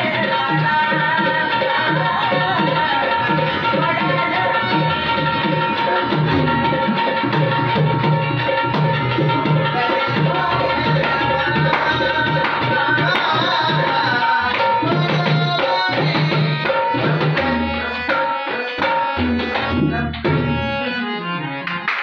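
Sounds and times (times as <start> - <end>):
man singing: 0.0 - 5.4, 9.4 - 21.0
harmonium chords: 0.0 - 22.0.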